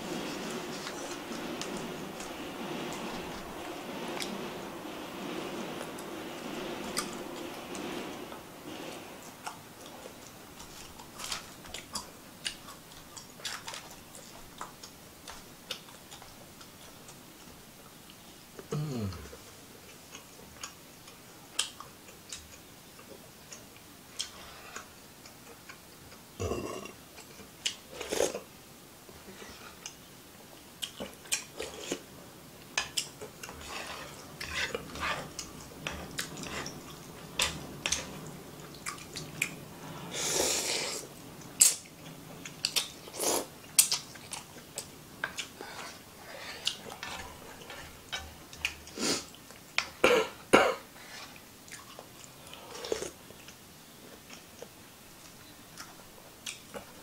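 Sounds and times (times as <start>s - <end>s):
chopsticks scraping a pan: 0.0s - 11.5s, 31.5s - 32.1s, 32.8s - 39.1s, 45.4s - 48.4s
slurping: 0.0s - 11.9s, 32.9s - 49.4s.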